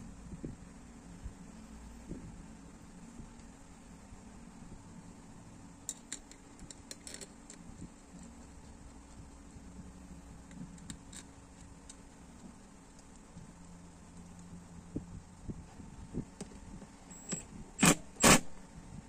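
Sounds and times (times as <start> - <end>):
low background hum: 0.0 - 19.0
metal parts clicking and tapping: 5.8 - 8.6, 10.4 - 14.4.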